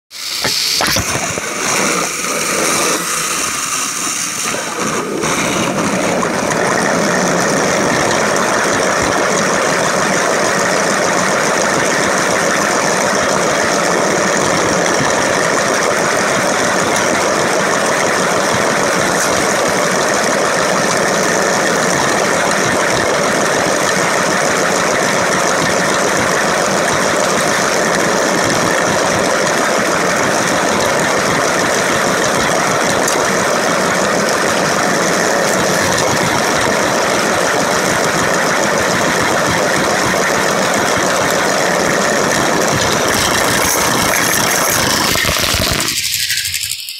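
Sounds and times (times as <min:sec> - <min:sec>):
toy train motor whirring: 0:00.2 - 0:06.2, 0:41.7 - 0:46.9.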